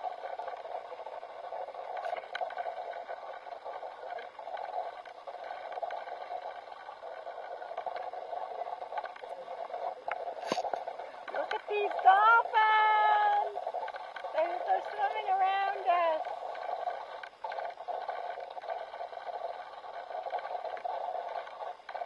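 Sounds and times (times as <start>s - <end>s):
faint ticks: 0.0s - 12.6s, 13.4s - 22.0s.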